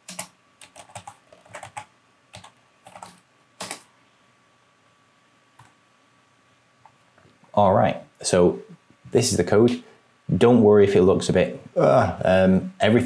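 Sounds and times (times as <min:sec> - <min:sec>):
typing on a keyboard: 0:00.0 - 0:03.8.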